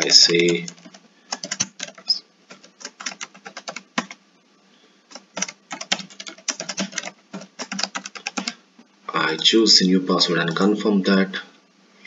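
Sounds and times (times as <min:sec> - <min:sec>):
keyboard keys clicking: 0:00.0 - 0:04.2, 0:05.1 - 0:08.6.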